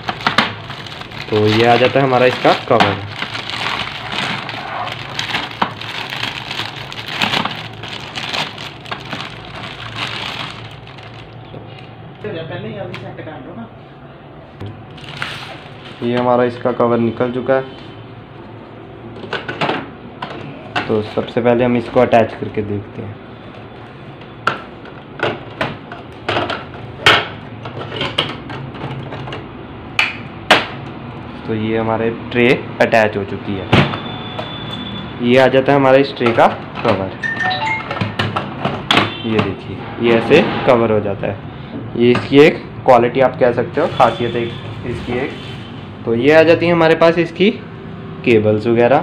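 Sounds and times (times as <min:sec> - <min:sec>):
plastic bag crinkling: 0:00.0 - 0:11.5, 0:14.9 - 0:16.1.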